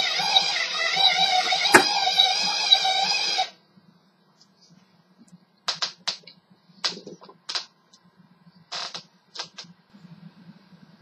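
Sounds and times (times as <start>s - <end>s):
faint low hum: 3.6s - 11.0s.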